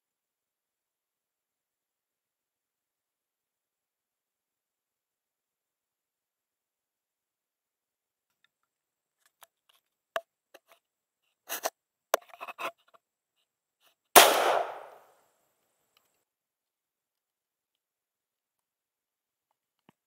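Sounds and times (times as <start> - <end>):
shotgun shot with echo: 14.2 - 15.0.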